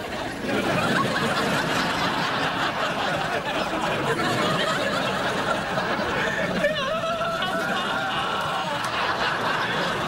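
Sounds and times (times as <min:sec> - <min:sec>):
audience laughing: 0:00.0 - 0:10.0.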